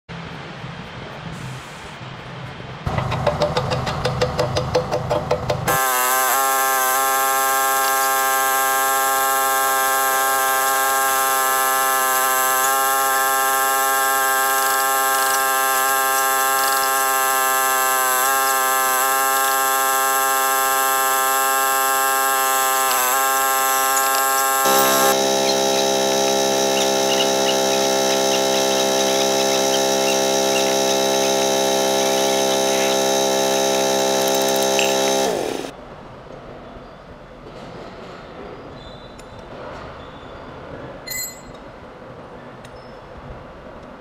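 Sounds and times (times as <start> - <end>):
steady buzzing drone: 2.8 - 35.7.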